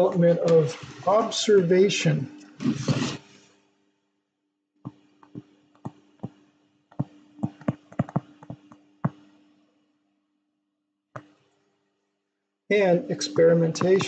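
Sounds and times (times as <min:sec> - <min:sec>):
digital pen tapping on tablet: 0:05.2 - 0:09.2.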